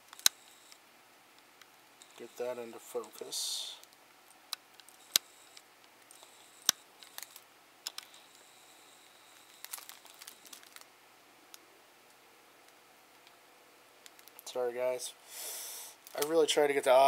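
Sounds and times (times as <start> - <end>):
light crinkling: 0.1 - 10.9, 14.0 - 14.6, 16.0 - 16.6.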